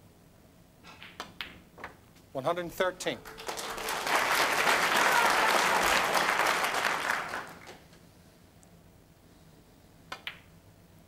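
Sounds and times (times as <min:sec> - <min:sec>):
audience applauding: 0:03.2 - 0:07.8.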